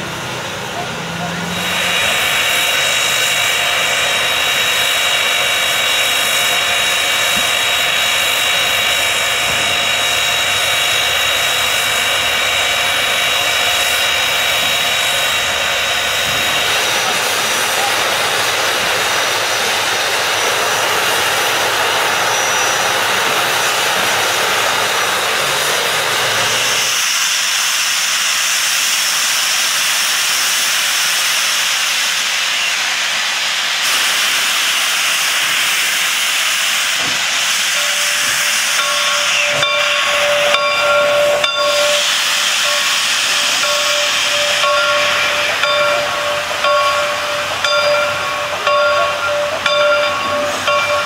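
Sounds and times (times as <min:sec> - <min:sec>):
steam hissing: 0:00.0 - 0:51.0
ringing tone: 0:37.8 - 0:42.0, 0:42.6 - 0:51.0.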